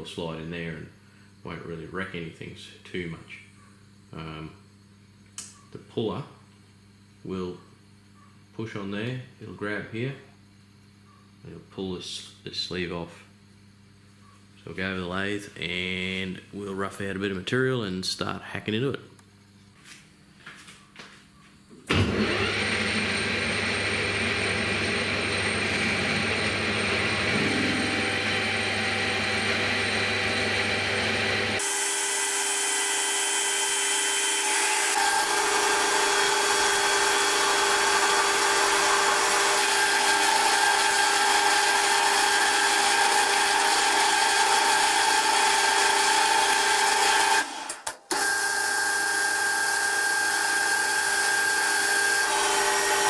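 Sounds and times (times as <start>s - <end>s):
metal lathe humming: 22.1s - 53.0s
high-pitched machining whine: 23.7s - 40.2s.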